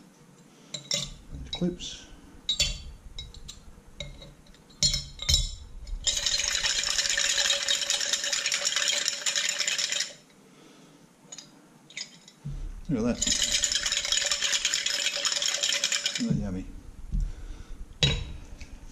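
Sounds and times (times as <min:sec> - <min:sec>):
metal parts clinking into glass jar: 0:02.5 - 0:10.2, 0:11.3 - 0:12.4, 0:13.2 - 0:16.3
parts rattling in shaken jar: 0:04.8 - 0:10.2, 0:11.3 - 0:12.4, 0:13.0 - 0:16.3.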